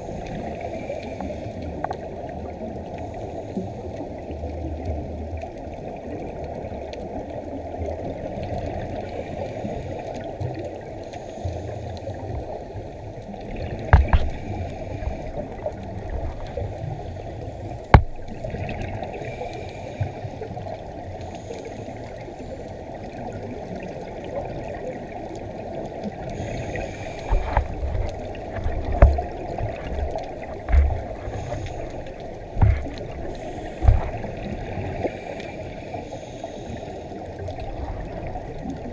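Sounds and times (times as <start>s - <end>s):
low underwater rush: 0.0s - 38.9s
sharp clicks and knocks: 13.9s - 14.4s, 17.8s - 18.2s, 32.6s - 33.0s, 33.8s - 34.2s.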